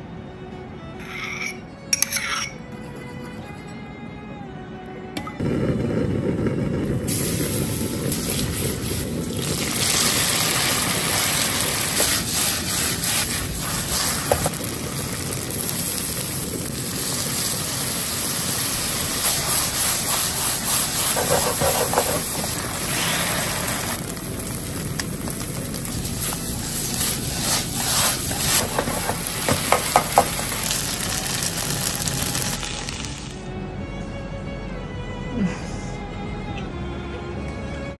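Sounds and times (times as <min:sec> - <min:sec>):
noodles sizzling in a wok: 0:06.2 - 0:33.5
clattering strokes: 0:19.2 - 0:23.2.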